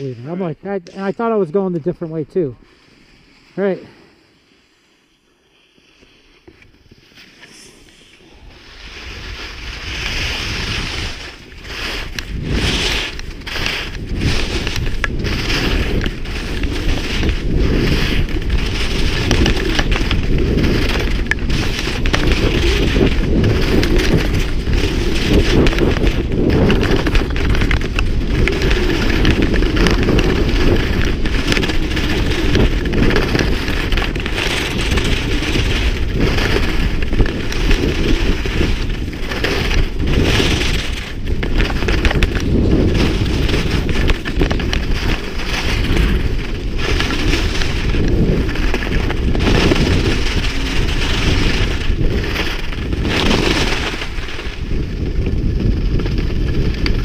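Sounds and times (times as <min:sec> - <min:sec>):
skis scraping on snow: 0:00.0 - 0:57.0
wind buffeting microphone: 0:07.4 - 0:57.0.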